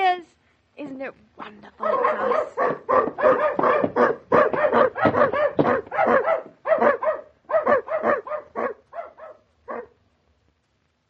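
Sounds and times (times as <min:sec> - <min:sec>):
dog barking rapidly: 0:01.8 - 0:10.0.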